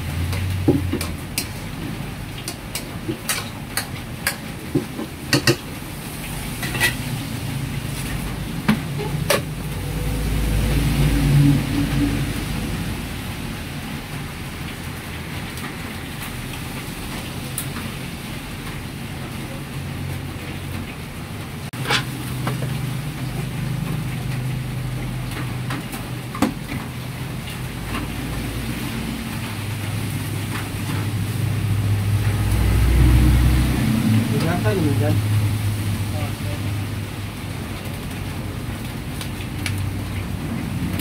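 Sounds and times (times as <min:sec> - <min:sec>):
gas wok burner rumbling: 0:00.0 - 0:41.0
kitchen clatters: 0:00.1 - 0:05.8, 0:06.5 - 0:07.2.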